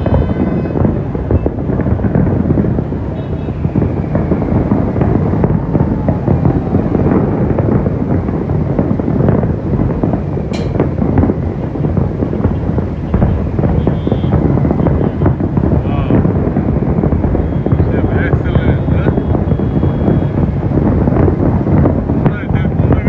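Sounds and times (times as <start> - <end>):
fireworks crackling and popping: 0.0 - 23.0
low rumble: 0.0 - 23.0.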